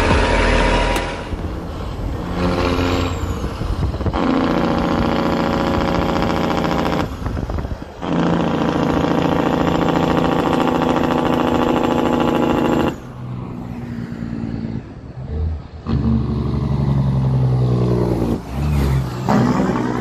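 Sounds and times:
truck engine brake exhaust pulsing: 0.0s - 13.1s
road noise: 0.0s - 20.0s.

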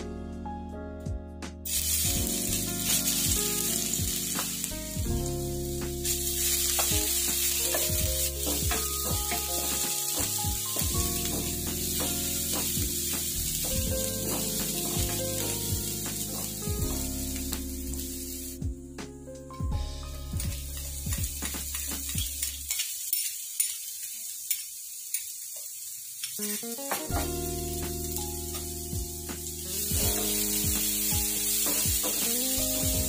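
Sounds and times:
paste sizzling in hot oil: 1.7s - 18.6s, 20.0s - 33.0s.

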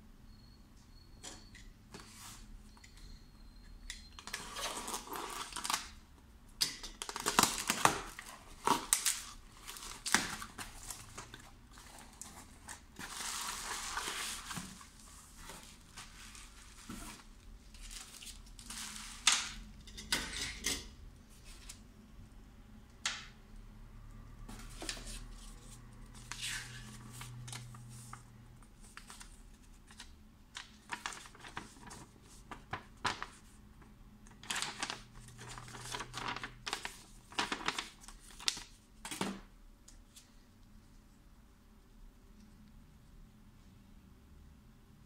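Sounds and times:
packing tape tearing: 7.0s - 10.5s
plastic packaging rustling: 7.0s - 19.6s, 28.8s - 33.6s, 34.3s - 38.8s.

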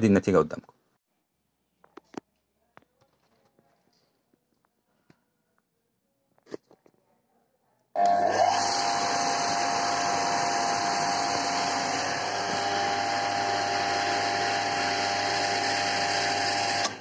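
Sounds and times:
water pump motor hum: 8.0s - 17.0s.

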